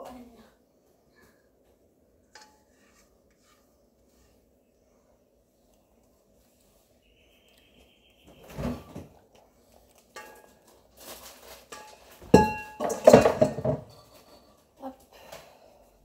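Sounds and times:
metal kitchenware clattering: 0:10.1 - 0:14.6.

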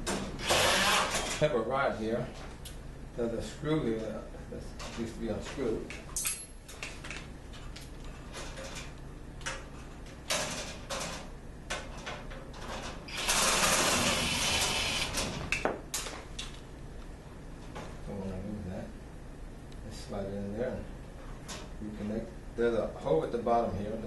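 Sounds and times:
cordless drill running: 0:00.4 - 0:01.2, 0:13.1 - 0:15.2.

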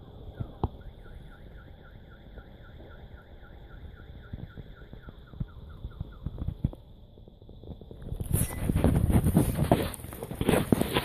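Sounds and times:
car alarm siren: 0:00.0 - 0:06.8.

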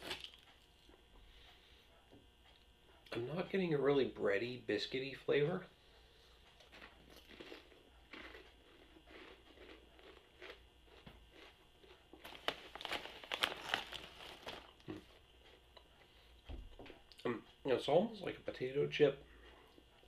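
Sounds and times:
potato chips being chewed: 0:00.0 - 0:01.1, 0:06.4 - 0:16.0
foil chip bag crinkling: 0:06.6 - 0:15.1.

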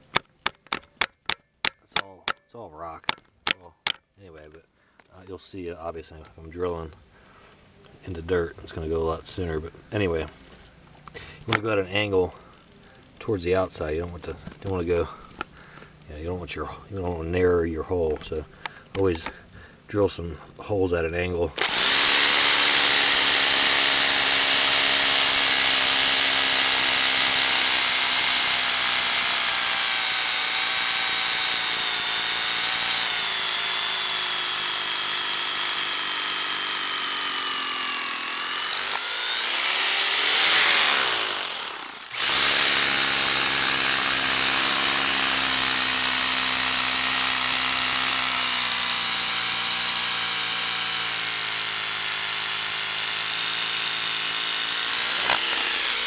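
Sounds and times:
hammer drill drilling into rock: 0:21.6 - 0:56.0.

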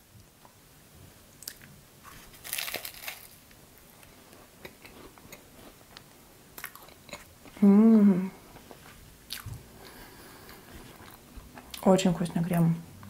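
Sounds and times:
pastry crunch: 0:01.4 - 0:07.6
quiet chewing: 0:04.0 - 0:07.6, 0:08.4 - 0:11.9.

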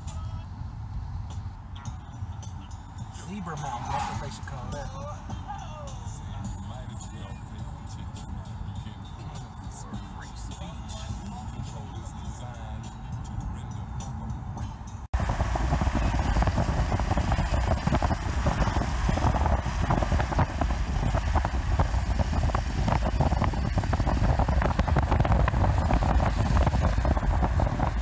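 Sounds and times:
car driving rumble: 0:00.0 - 0:28.0
wind buffeting microphone: 0:15.1 - 0:28.0.

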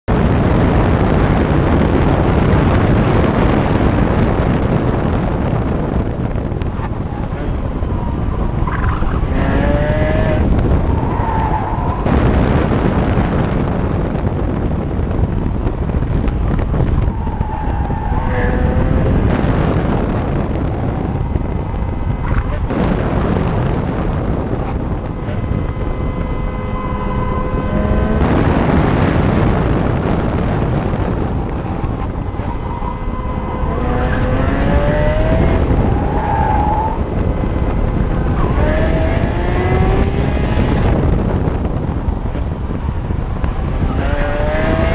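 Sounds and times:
tyre and road noise: 0:00.0 - 0:44.9
wind rush: 0:00.0 - 0:44.9
car engine running: 0:00.1 - 0:44.9
brake squealing: 0:30.8 - 0:40.0.

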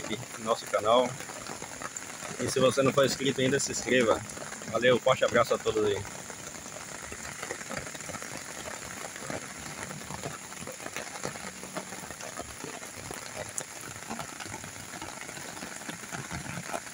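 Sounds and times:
raindrop ticks: 0:00.0 - 0:16.9
steady rain hiss: 0:00.0 - 0:16.9.

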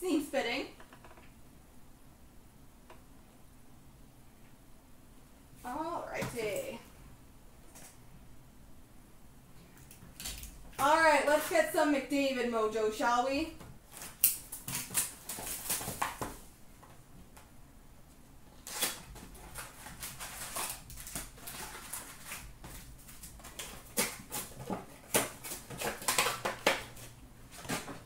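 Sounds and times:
cardboard and wrappers rustling: 0:13.9 - 0:16.5, 0:18.6 - 0:28.0.

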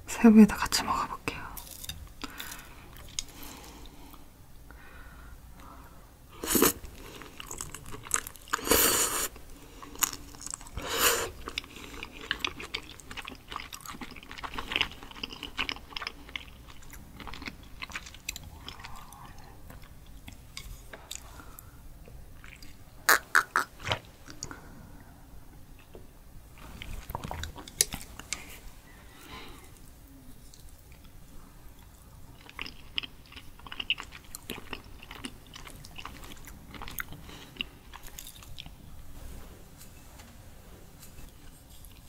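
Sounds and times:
person chewing wetly: 0:06.6 - 0:21.3, 0:22.4 - 0:24.5, 0:26.7 - 0:28.5, 0:31.8 - 0:38.8.

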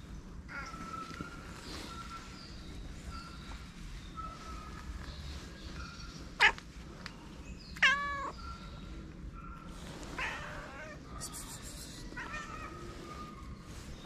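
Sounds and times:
cat meowing: 0:07.8 - 0:08.4, 0:10.2 - 0:11.0.

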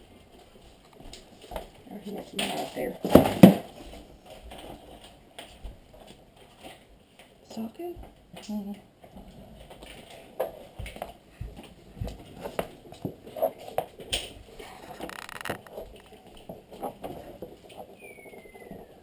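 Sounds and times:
scraping rustle: 0:11.8 - 0:19.0
faint falling whistle: 0:18.0 - 0:19.0.

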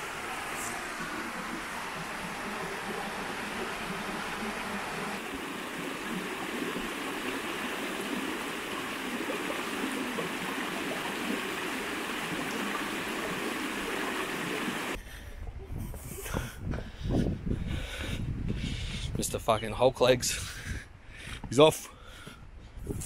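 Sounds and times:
creek water rushing over rocks: 0:00.0 - 0:15.0.

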